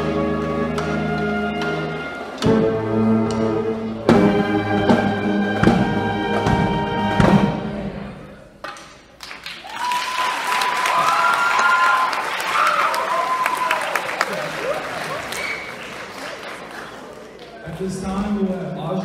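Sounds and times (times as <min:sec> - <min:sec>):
brass and drum band chords: 0:00.0 - 0:08.6
applause: 0:09.2 - 0:17.6.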